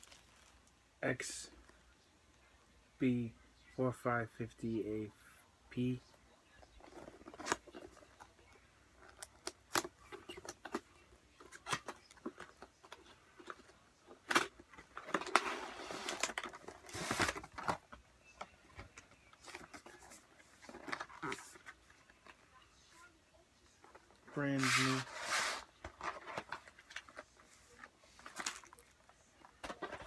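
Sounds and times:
packaging rustling and scraping: 11.4 - 18.0, 23.9 - 30.0.

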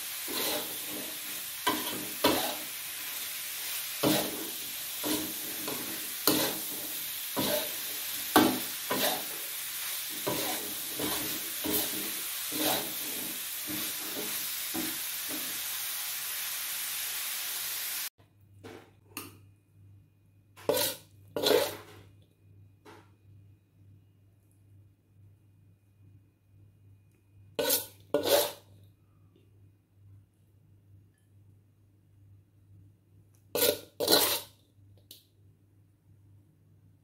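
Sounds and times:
spatula scraping a wok: 0.0 - 15.8, 20.6 - 22.1, 27.6 - 28.7, 33.5 - 34.6
food sizzling: 0.0 - 18.1, 20.6 - 21.9, 27.6 - 28.7, 33.6 - 34.6.

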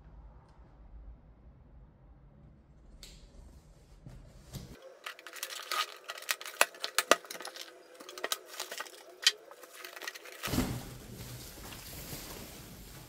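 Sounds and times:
cardboard box and tape crackling: 4.7 - 13.0
plastic sleeve rustling: 4.7 - 13.0.

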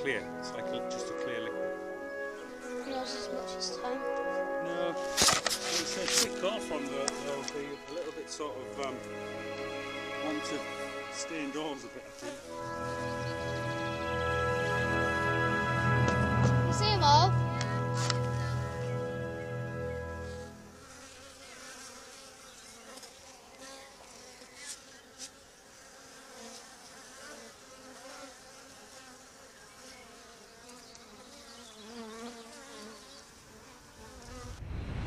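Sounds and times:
background music: 0.0 - 20.8
honeybees buzzing: 0.0 - 34.6
low whoosh: 34.3 - 35.0.

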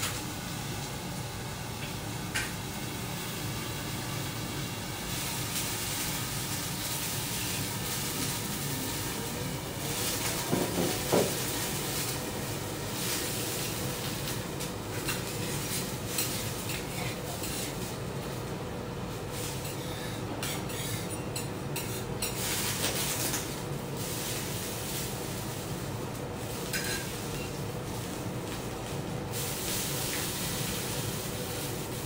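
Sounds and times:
steady hiss: 22.3 - 32.0.

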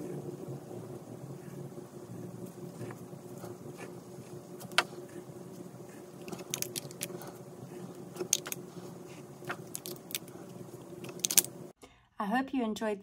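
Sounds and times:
low steady hum: 0.0 - 12.2
marker rubbing on paper: 1.3 - 10.6.

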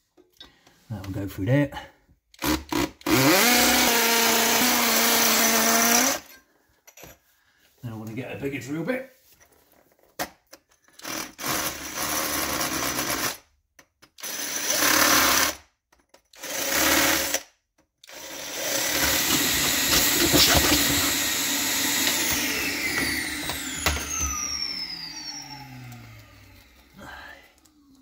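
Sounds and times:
power drill boring into concrete: 2.4 - 6.3, 11.0 - 13.4, 14.2 - 15.6, 16.4 - 27.8.

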